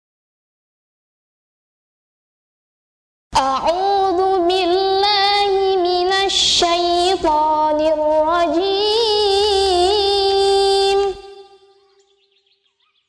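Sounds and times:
woman reciting melodically: 3.4 - 11.9.

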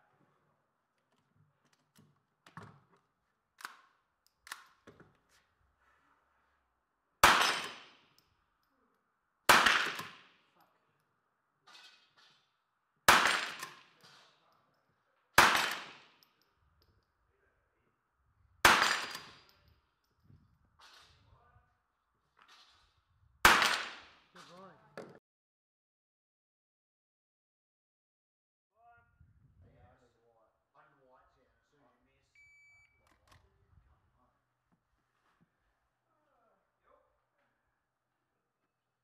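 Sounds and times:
rifle shots echoing: 7.2 - 8.0, 9.5 - 10.3, 13.1 - 13.9, 15.4 - 16.2, 18.6 - 19.4, 23.4 - 24.2.

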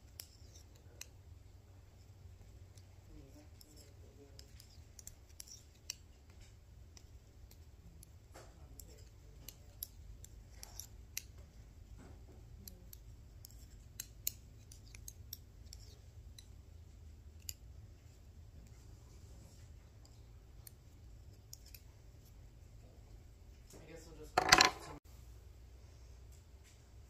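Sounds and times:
faint steady low hum: 0.0 - 27.0
knitting needles clicking: 2.4 - 11.6, 12.4 - 17.7, 20.0 - 21.9.

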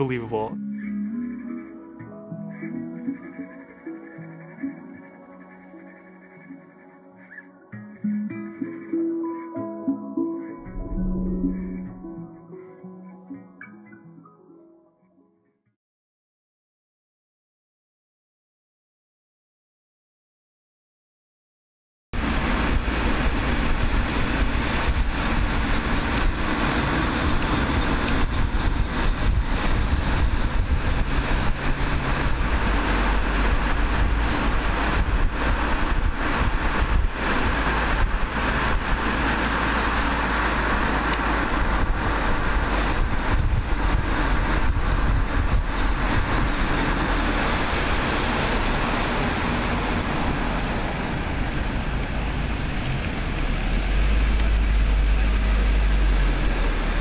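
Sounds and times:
cars driving on road: 22.2 - 57.0
low engine hum: 22.2 - 57.0.

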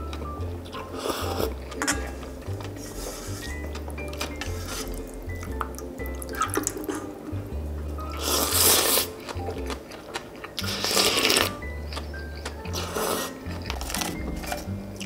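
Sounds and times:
eating clicks: 0.0 - 7.2, 8.0 - 15.0
background music with bass line: 0.0 - 9.9, 10.6 - 15.0
loud slurp of noodles: 8.2 - 9.2, 10.6 - 11.6, 12.7 - 13.4.

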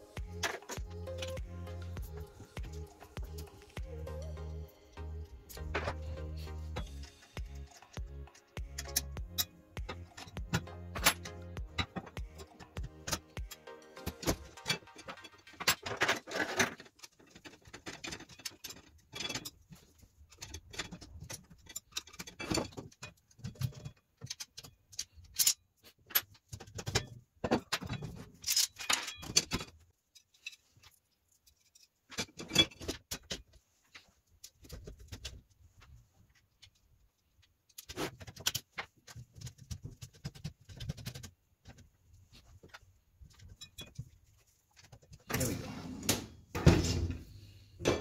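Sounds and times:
metal parts clinking and knocking: 14.0 - 33.6.

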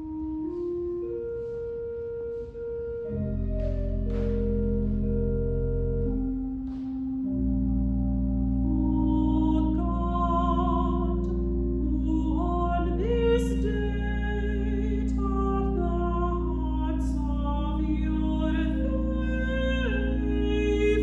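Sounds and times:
low sustained accompaniment: 0.0 - 21.0
soprano voice singing: 8.8 - 21.0.

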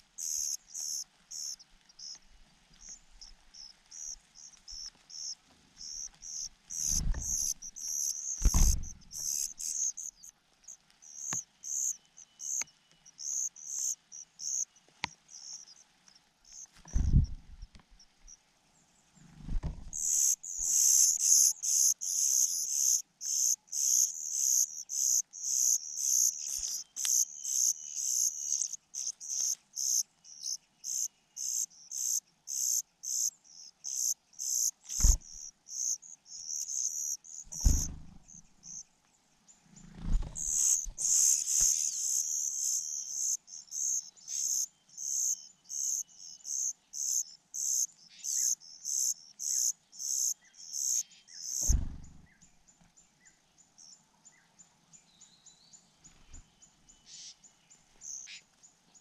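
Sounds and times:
nestlings begging cheeps: 0.0 - 2.2, 2.8 - 10.3, 20.0 - 38.8, 40.2 - 52.3
low thuds: 8.4 - 9.3, 16.9 - 17.7, 19.4 - 20.0, 37.5 - 38.5, 51.6 - 52.4.

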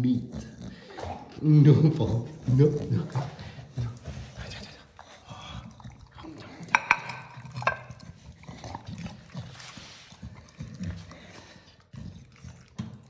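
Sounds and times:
dog chewing wet food: 0.2 - 13.0
ceramic plate clinking: 6.7 - 8.0.

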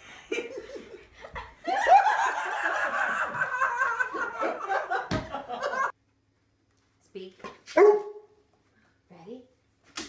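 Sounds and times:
laughter: 0.0 - 5.9.

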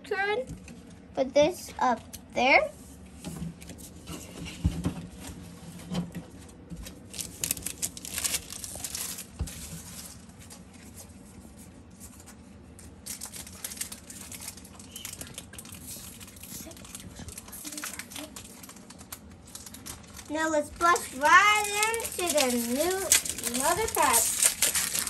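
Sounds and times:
cards rustling: 13.1 - 25.0.

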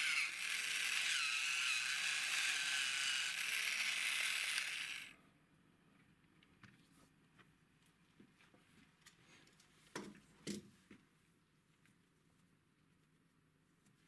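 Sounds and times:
toy motor whirring: 0.0 - 5.2.

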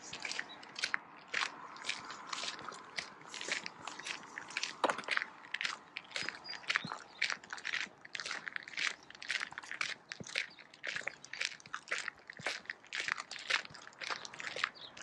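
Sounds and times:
footsteps crunching in snow: 0.0 - 15.0.

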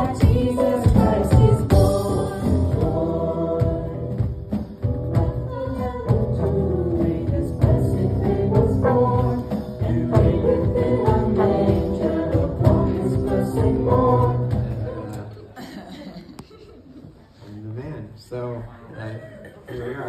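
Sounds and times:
instruments with steady beat: 0.0 - 15.1
voices singing: 0.0 - 15.4.

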